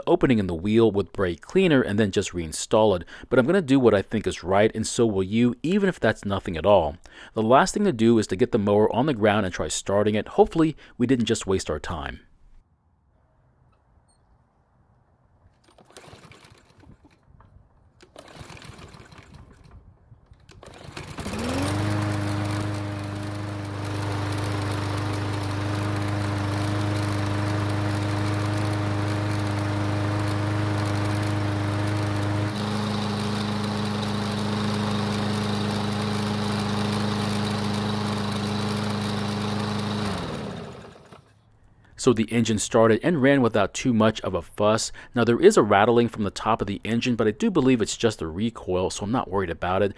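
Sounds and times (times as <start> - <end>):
lawn mower engine running: 15.6 - 17.2, 18.0 - 19.8, 20.4 - 41.4
rattle from engine top: 15.6 - 17.4.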